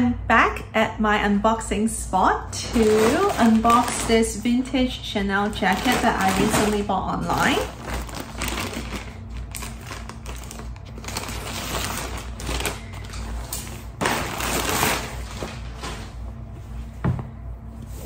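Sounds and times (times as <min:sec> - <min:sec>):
plastic packaging crinkling: 0:02.6 - 0:16.1.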